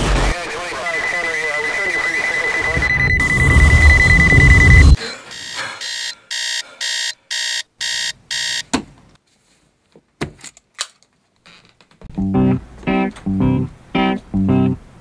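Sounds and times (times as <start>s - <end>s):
alarm clock beeping: 0.8s - 8.6s.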